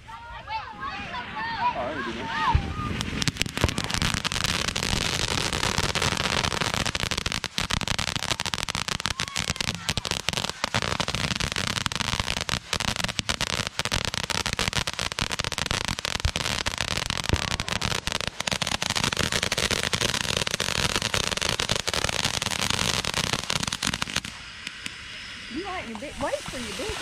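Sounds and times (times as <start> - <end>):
fireworks crackling: 0.0 - 27.0.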